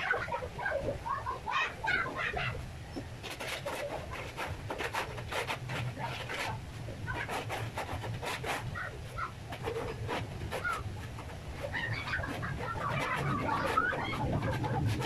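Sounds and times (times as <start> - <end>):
brush scraping floor: 3.2 - 15.0.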